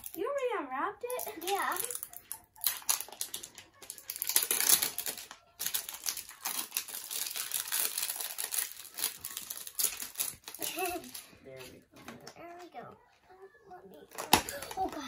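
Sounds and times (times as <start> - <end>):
plastic wrapping crackling: 1.0 - 12.4.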